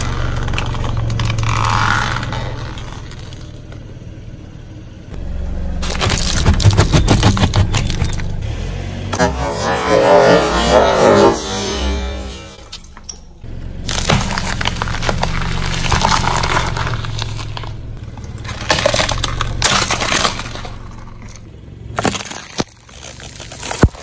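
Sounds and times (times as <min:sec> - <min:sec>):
low engine hum: 0:00.0 - 0:24.0
tyre crushing objects: 0:05.8 - 0:08.3, 0:13.8 - 0:24.0.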